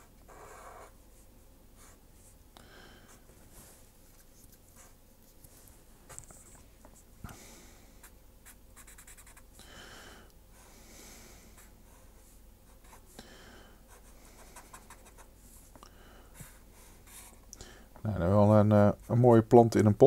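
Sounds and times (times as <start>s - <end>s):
pen scratching on paper: 8.4s - 9.4s, 13.9s - 15.3s.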